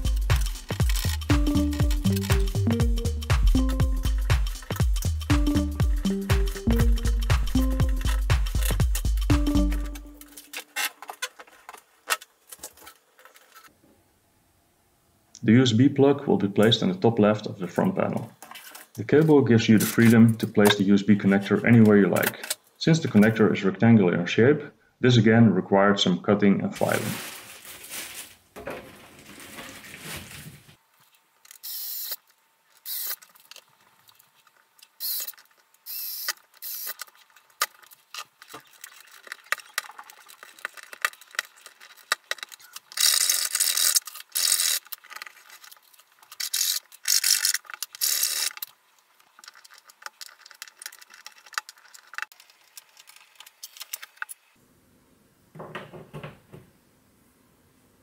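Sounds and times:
plastic sheeting rustling: 26.8s - 30.8s.

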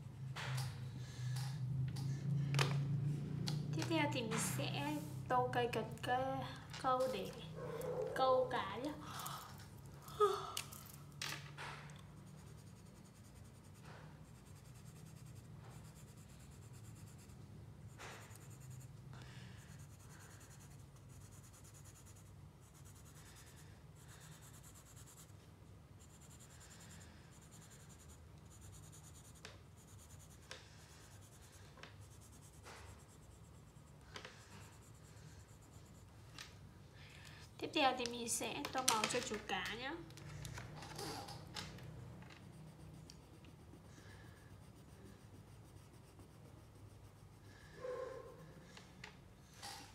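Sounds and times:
marker scratching on paper: 12.0s - 19.0s, 19.6s - 25.4s, 26.0s - 36.2s, 42.4s - 48.7s.

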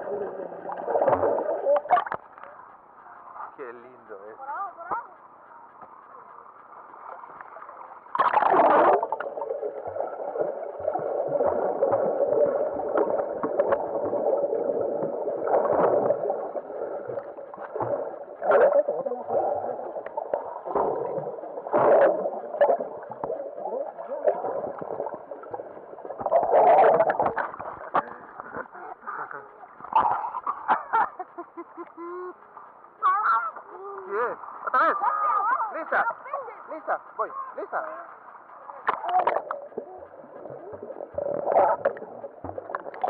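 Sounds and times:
underwater gurgling and bubbling: 0.0s - 2.2s, 6.9s - 30.8s, 38.4s - 43.0s
water sloshing: 0.0s - 2.6s, 5.7s - 31.2s.

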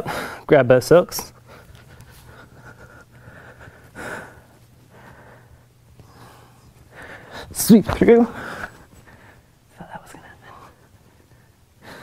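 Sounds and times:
low room hum: 0.0s - 12.0s
person breathing: 1.5s - 7.6s, 8.2s - 9.6s, 10.4s - 12.0s.

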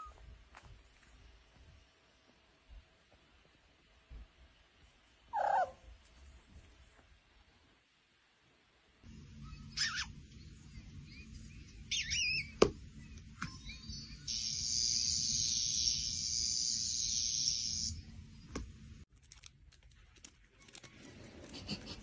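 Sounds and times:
high chirping squeaks: 9.5s - 10.2s, 11.9s - 12.6s
steady high hiss: 13.9s - 19.0s.

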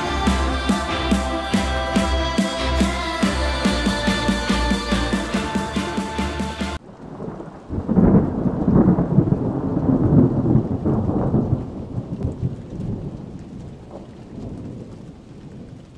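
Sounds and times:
rain: 0.0s - 15.9s
rolling thunder: 6.8s - 15.8s.

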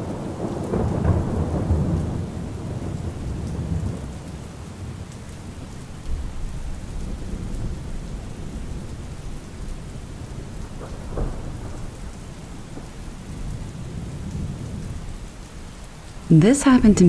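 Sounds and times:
low rumble of thunder: 0.0s - 16.3s
steady rain: 0.0s - 17.0s.

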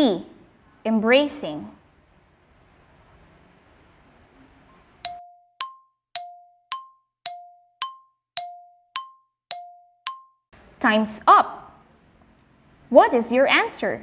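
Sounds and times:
countdown timer ticks: 5.0s - 10.4s.

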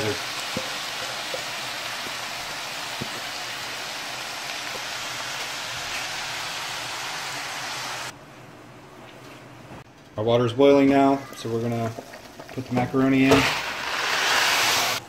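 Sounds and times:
food sizzling in skillet: 0.0s - 8.1s, 11.8s - 15.0s.

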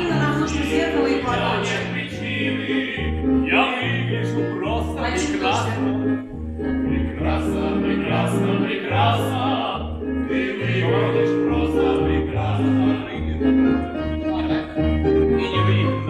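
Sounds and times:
backing track with bass: 0.0s - 16.0s
voices singing together: 0.0s - 16.0s.

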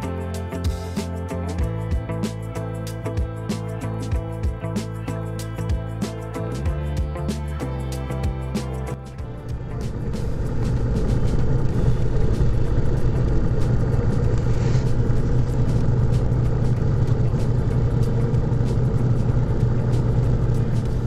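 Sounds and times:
heavy vehicle engine running: 0.0s - 21.0s.

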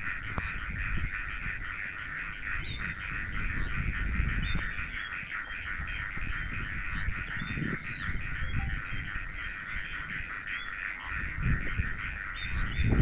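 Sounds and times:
chorus of calling insects or frogs: 0.0s - 13.0s.

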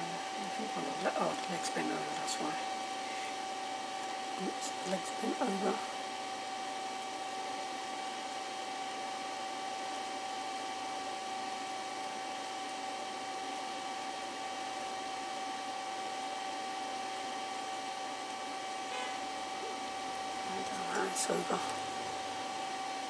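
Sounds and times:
electric blower running: 18.6s - 23.0s.

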